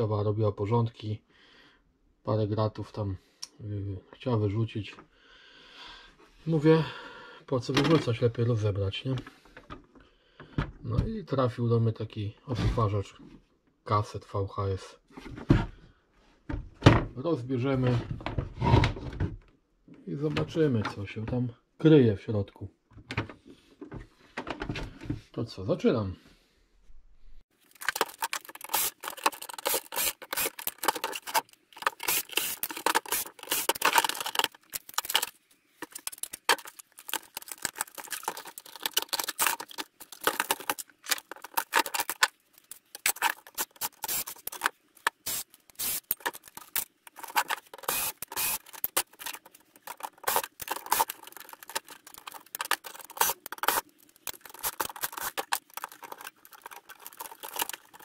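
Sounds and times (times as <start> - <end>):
plastic and metal parts clicking: 27.6 - 58.0.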